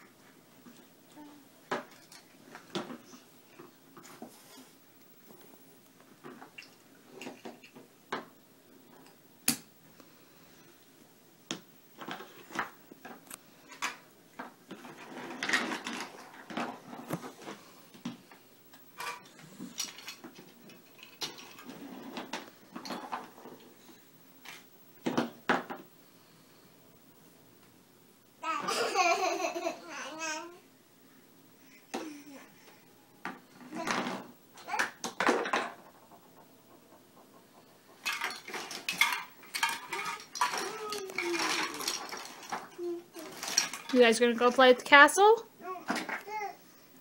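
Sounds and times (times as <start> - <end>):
plastic toys clattering: 1.7 - 3.1, 6.2 - 8.3, 12.0 - 17.6, 19.0 - 23.6, 33.6 - 46.5.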